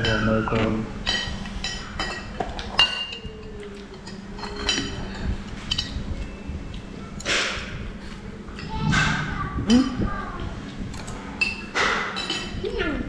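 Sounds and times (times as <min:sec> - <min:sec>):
tableware clinking on ceramic plates: 0:00.0 - 0:03.3, 0:03.9 - 0:06.4, 0:11.0 - 0:12.6.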